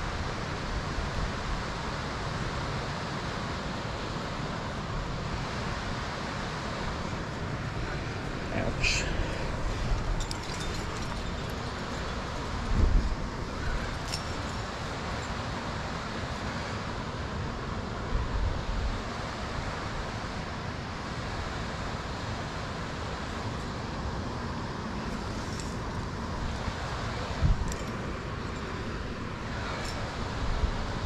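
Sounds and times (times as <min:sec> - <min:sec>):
wind noise on microphone: 0:04.8 - 0:16.6, 0:25.0 - 0:31.0.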